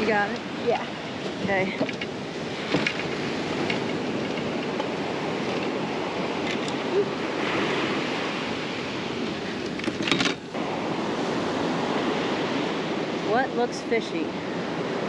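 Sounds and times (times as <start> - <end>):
ocean surf breaking: 0.0 - 15.0
fishing gear clatter: 1.4 - 7.2, 9.6 - 10.5.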